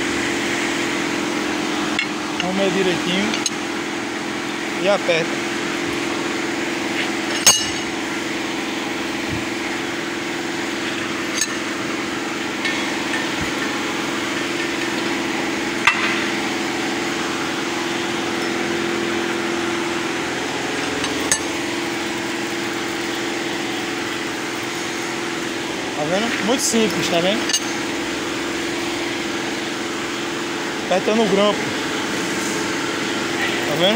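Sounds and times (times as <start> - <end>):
steady mechanical hum: 0.0 - 33.9.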